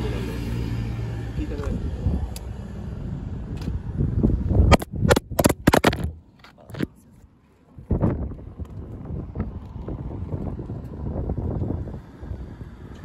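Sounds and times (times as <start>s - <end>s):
wind rumbling on microphone: 0.6s - 7.1s, 7.7s - 13.0s
phone handling knocks and rubs: 4.7s - 6.2s.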